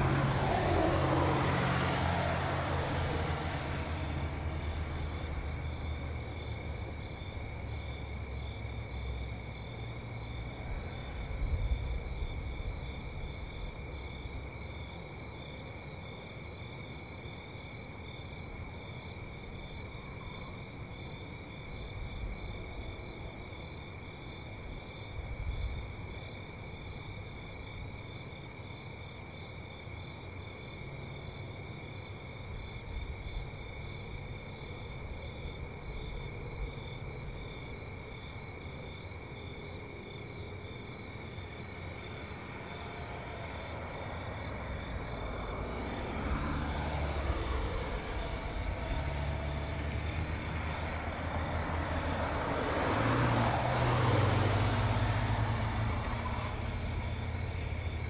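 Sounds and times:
crickets chirping: 0:00.0 - 0:58.0
traffic rumble: 0:00.0 - 0:58.0.

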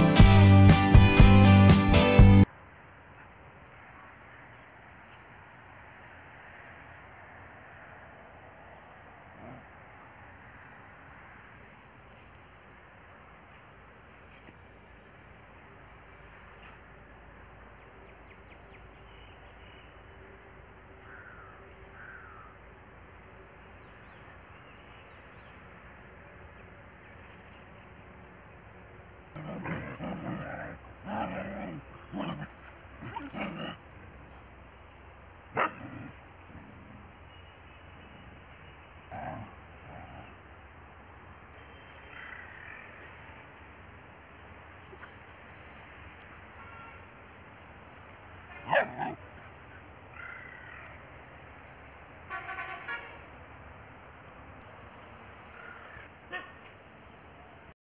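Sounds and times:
dogs vocalising: 0:29.4 - 0:33.8, 0:48.6 - 0:49.2
horn short toots: 0:52.3 - 0:53.2.

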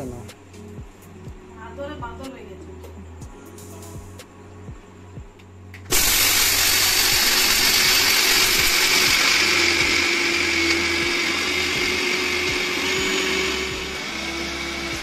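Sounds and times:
mixer grinder whining: 0:05.9 - 0:15.0.

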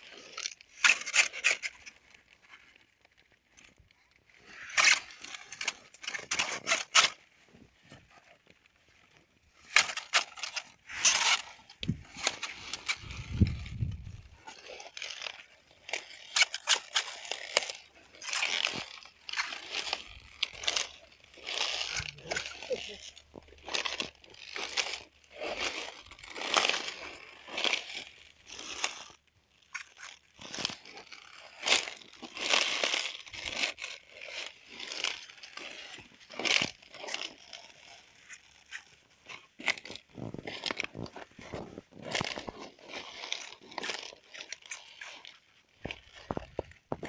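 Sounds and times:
footsteps on soil: 0:10.9 - 0:14.9
brushing through leaves: 0:11.9 - 0:16.3.

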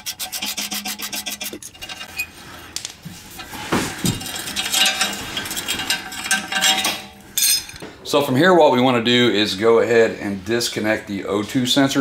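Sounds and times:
metal parts clinking: 0:04.2 - 0:07.8.

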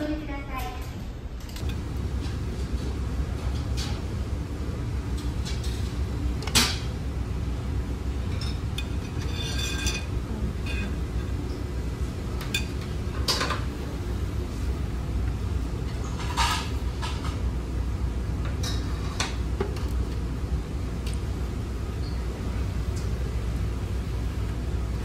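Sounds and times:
steady low hum: 0:00.0 - 0:25.0
metal spoons clinking on pot: 0:08.4 - 0:11.0.

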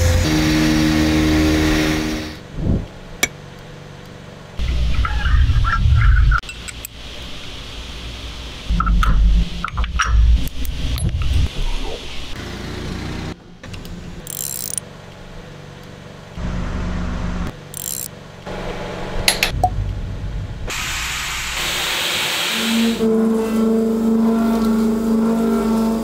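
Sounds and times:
ratchet clicking: 0:13.8 - 0:14.8, 0:17.6 - 0:18.1
machine cutting steel with whine: 0:22.7 - 0:26.0.

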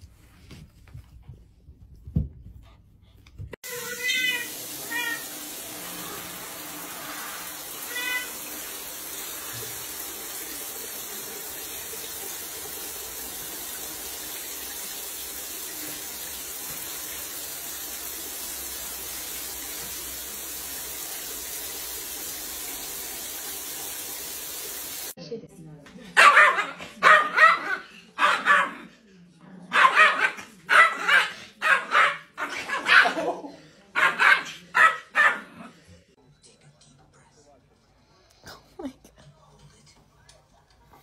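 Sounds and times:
shower water spraying on tiles: 0:03.6 - 0:25.2
cat meowing: 0:03.7 - 0:05.3.

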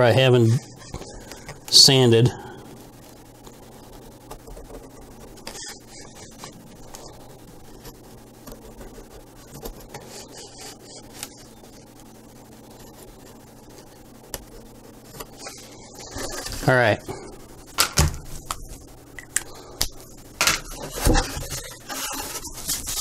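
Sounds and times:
low steady hum: 0:00.0 - 0:23.0
marker scratching on wood: 0:08.9 - 0:11.4.

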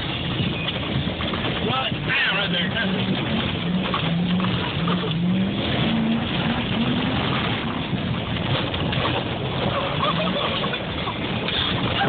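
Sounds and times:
driving rumble: 0:00.0 - 0:12.0
pickup engine speeding up: 0:02.5 - 0:12.0.

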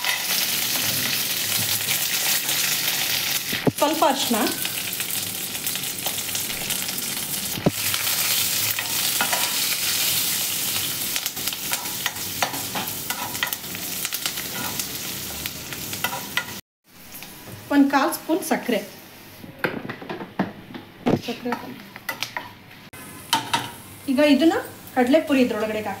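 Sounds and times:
oil sizzling and crackling: 0:00.0 - 0:18.5, 0:21.7 - 0:26.0.

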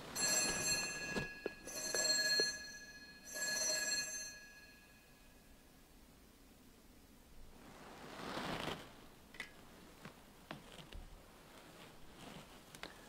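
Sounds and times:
altar bell ringing: 0:00.1 - 0:05.6.

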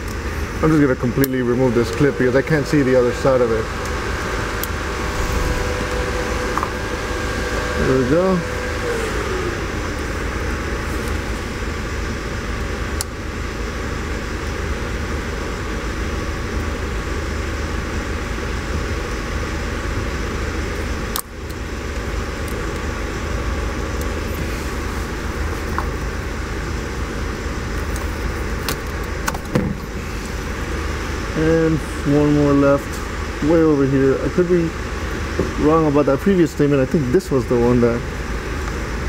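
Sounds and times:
fan-like rushing noise: 0:01.6 - 0:12.8.

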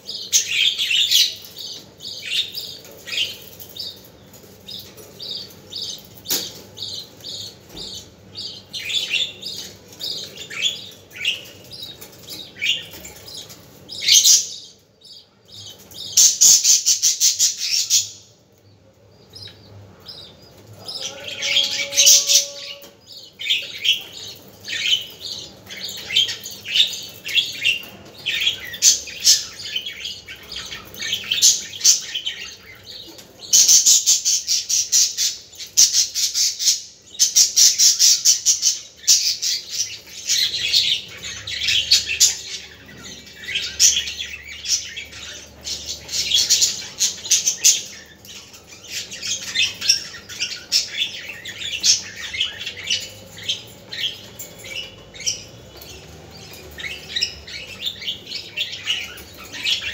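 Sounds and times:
budgerigars chattering and chirping: 0:19.2 - 0:59.9.

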